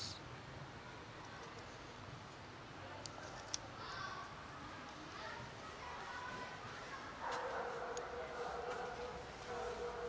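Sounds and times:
distant voices: 0:02.8 - 0:10.0.

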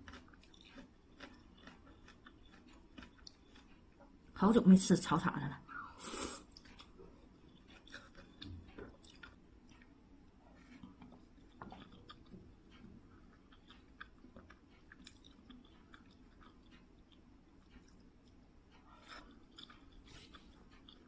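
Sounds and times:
faint chewing: 0:00.0 - 0:04.5, 0:05.6 - 0:21.0.

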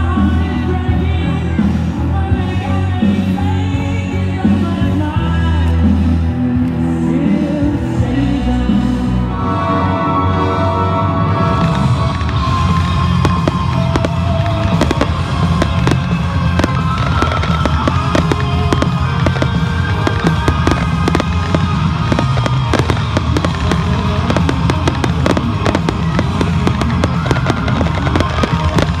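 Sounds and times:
background music: 0:00.0 - 0:29.0
ground fireworks crackling and popping: 0:11.5 - 0:29.0.

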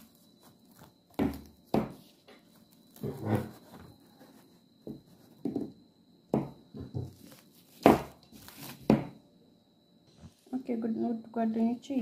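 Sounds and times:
cling film rustling: 0:07.1 - 0:09.0.

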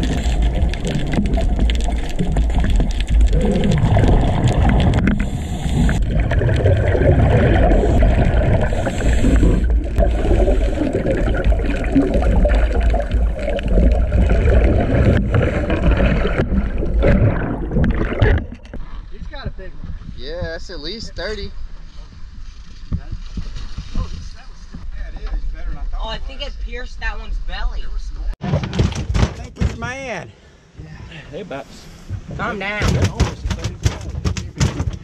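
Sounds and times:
underwater bubbles gurgling: 0:00.0 - 0:19.2
water splashing: 0:00.0 - 0:25.2.

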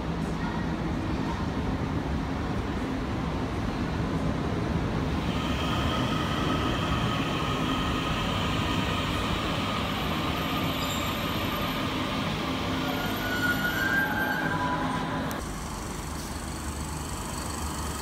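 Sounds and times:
train rumbling on rails: 0:00.0 - 0:18.0
faint wheel squeal: 0:12.7 - 0:15.2.

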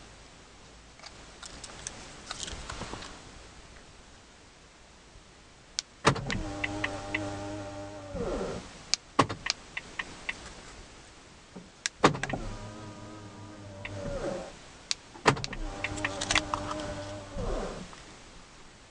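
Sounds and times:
sharp clicks: 0:05.8 - 0:07.3, 0:08.9 - 0:10.4, 0:13.8 - 0:14.1, 0:14.9 - 0:17.2
electric window motor whine: 0:06.1 - 0:08.7, 0:12.1 - 0:14.6, 0:15.3 - 0:18.0.

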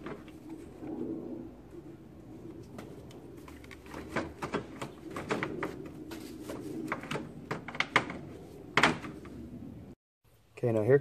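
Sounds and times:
clicks and knocks of car parts: 0:03.5 - 0:05.8, 0:06.9 - 0:09.3.

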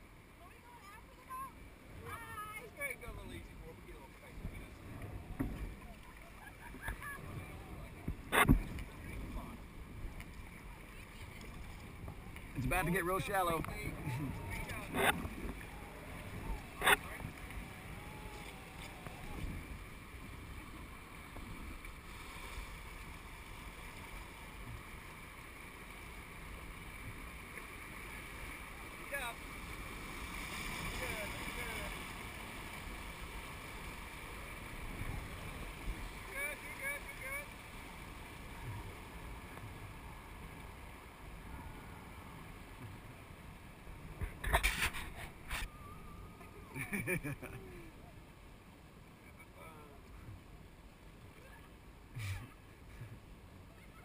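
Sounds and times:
river water rushing: 0:00.0 - 0:46.8
wind rumble on microphone: 0:03.4 - 0:25.0.

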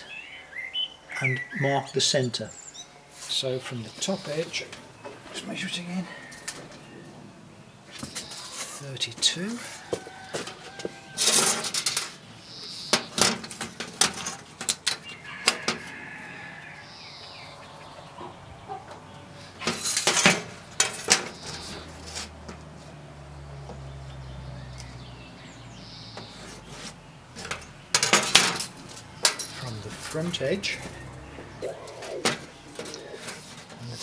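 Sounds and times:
metal tools clinking on sheet metal: 0:10.4 - 0:12.2, 0:12.9 - 0:15.8, 0:19.6 - 0:22.6, 0:27.4 - 0:30.8.

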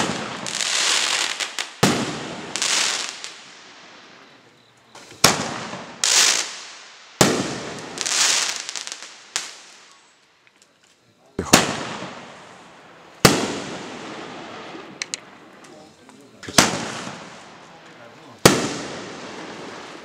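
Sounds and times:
firework bursting bang: 0:00.0 - 0:03.2, 0:05.0 - 0:06.6, 0:07.2 - 0:08.6, 0:11.4 - 0:12.5, 0:13.2 - 0:15.0, 0:16.4 - 0:17.5, 0:18.4 - 0:20.0
crackling firework stars: 0:00.0 - 0:20.0.

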